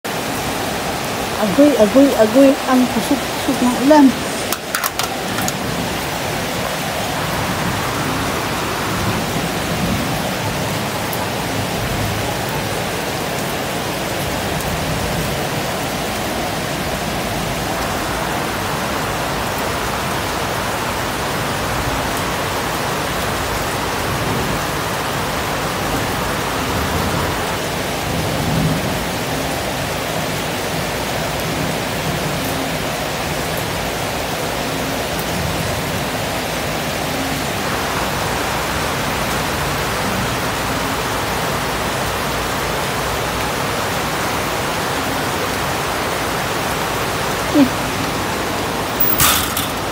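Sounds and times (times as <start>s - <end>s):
heavy rain: 0.0s - 49.9s.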